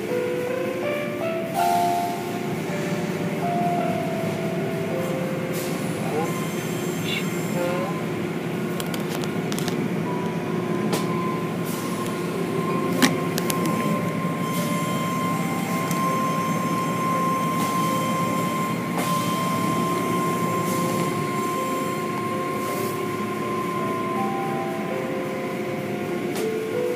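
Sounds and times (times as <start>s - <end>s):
machine whine: 6.0s - 26.9s.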